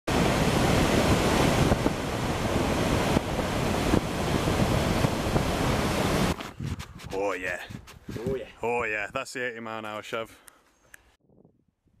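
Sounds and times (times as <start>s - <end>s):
sea surf churning: 0.1s - 6.4s
wind buffeting microphone: 0.1s - 9.2s, 11.2s - 12.0s.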